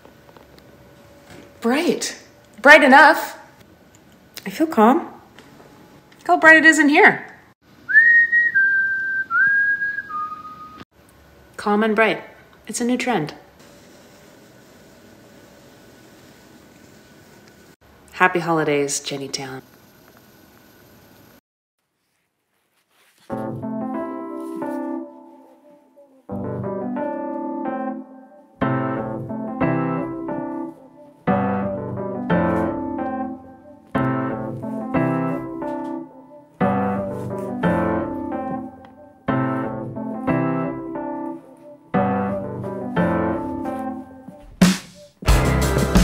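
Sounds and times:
piano playing slow chords: 23.4s - 44.4s.

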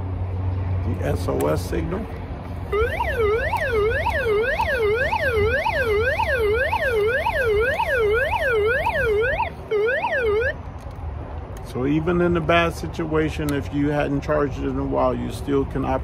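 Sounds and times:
swooping electronic siren: 2.6s - 10.6s.

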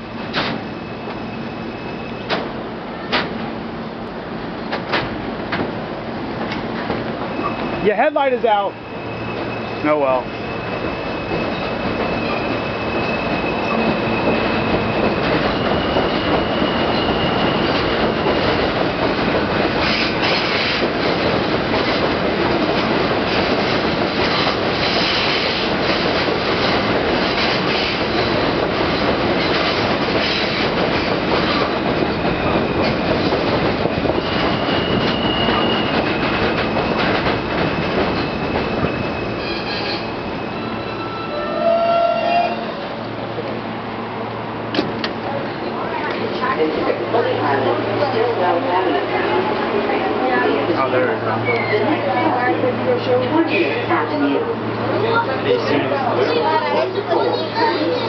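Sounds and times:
subway train wheels rumbling: 0.0s - 58.0s
high wheel squeal: 0.6s - 2.4s, 7.3s - 7.9s, 8.5s - 18.4s, 33.9s - 37.1s, 37.7s - 42.8s, 51.4s - 52.1s.

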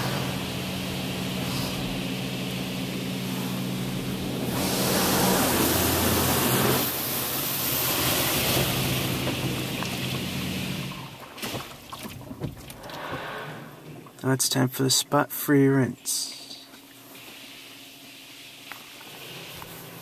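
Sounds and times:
water spray hissing: 0.0s - 11.0s
low machine hum: 0.0s - 20.0s.

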